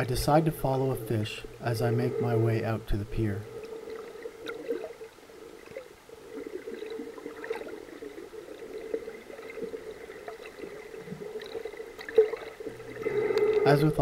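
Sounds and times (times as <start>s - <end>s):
muffled underwater hum: 0.0s - 14.0s
water gurgling: 0.0s - 14.0s
faint ticks: 3.4s - 14.0s.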